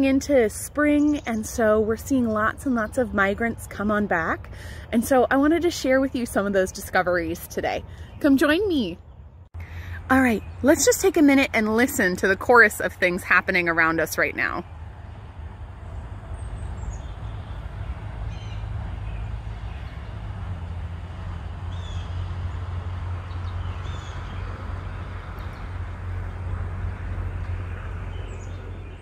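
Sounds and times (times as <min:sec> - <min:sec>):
birds chirping: 0:00.0 - 0:29.0
steady low rumble: 0:09.0 - 0:29.0.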